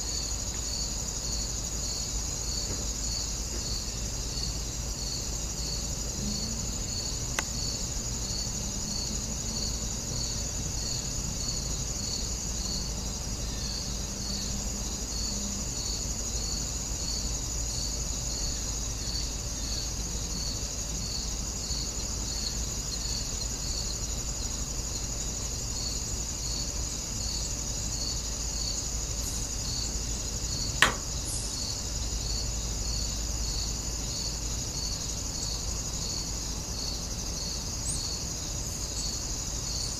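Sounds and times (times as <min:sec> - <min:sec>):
insect chorus trilling: 0:00.0 - 0:39.9
sharp click: 0:30.8 - 0:31.3.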